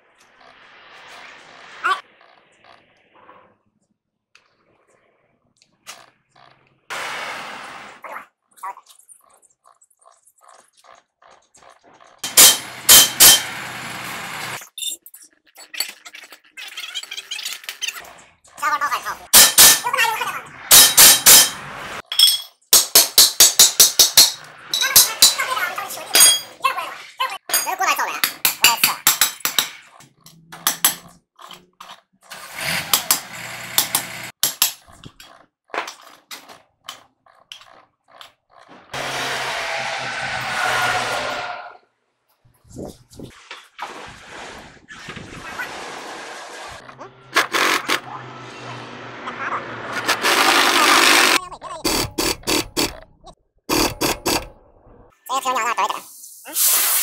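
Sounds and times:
pneumatic impact wrench hammering: 12.2s - 13.8s, 19.4s - 19.8s, 20.7s - 21.6s, 22.8s - 24.5s, 32.4s - 34.8s, 47.3s - 48.0s, 50.0s - 53.0s, 53.7s - 54.5s
rough scraping noise: 39.0s - 41.8s, 42.8s - 53.0s.

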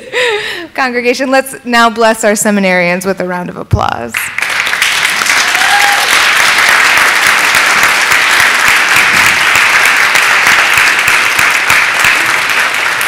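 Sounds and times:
crowd applauding: 4.2s - 13.0s.

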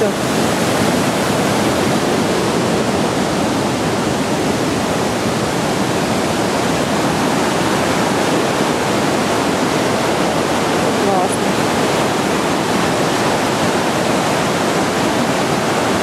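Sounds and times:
river churning over rocks: 0.0s - 16.0s.

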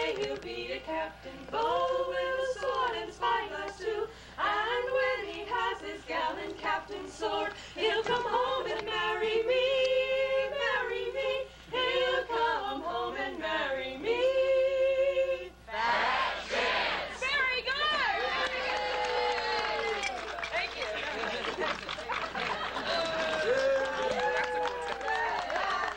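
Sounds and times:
women singing in harmony: 0.0s - 17.0s
audience noise: 17.8s - 25.9s.

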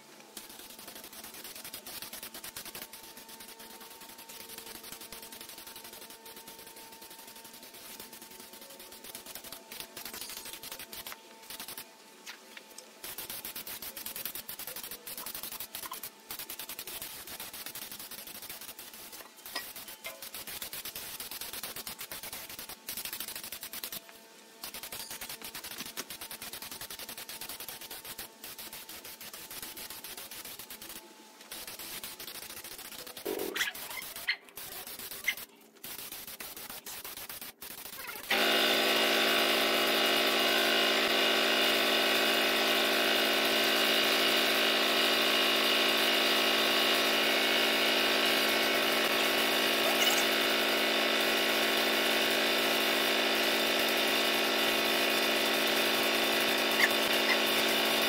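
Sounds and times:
air compressor running: 0.0s - 11.9s, 24.6s - 58.0s.

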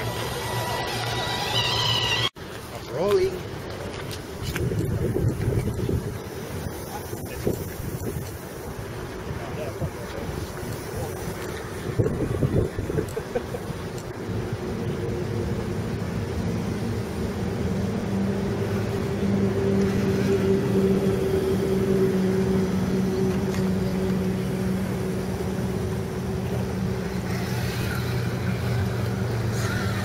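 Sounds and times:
mechanical motor hum: 0.0s - 2.3s
high wavering whine: 0.0s - 2.4s, 14.1s - 30.0s.

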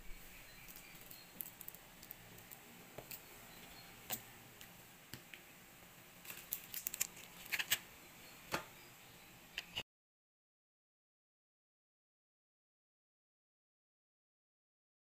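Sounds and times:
faint steady hiss: 0.0s - 9.8s.

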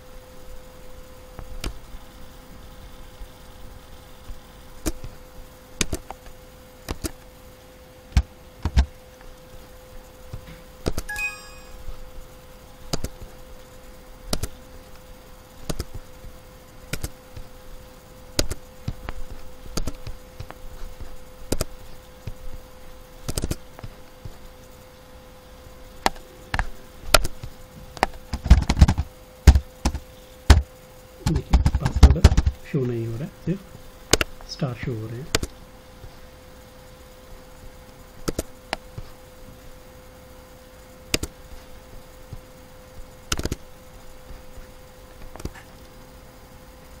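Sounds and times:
faint steady hum: 0.0s - 47.0s
mouse and keyboard clicks: 5.8s - 6.2s, 6.9s - 7.2s, 10.3s - 11.7s, 12.9s - 13.2s, 14.3s - 14.6s, 15.6s - 16.0s, 16.9s - 17.5s, 18.4s - 20.6s, 21.5s - 22.4s, 23.2s - 23.9s, 35.3s - 35.6s, 38.2s - 38.8s, 41.1s - 41.4s, 43.3s - 43.6s
brief ringing tone: 11.1s - 11.9s.

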